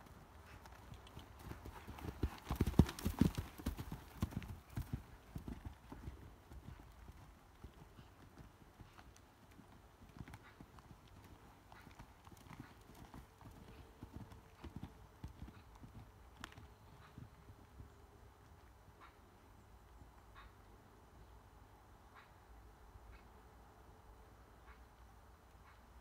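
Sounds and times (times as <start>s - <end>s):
muffled hoofbeats on sand: 0.0s - 19.1s.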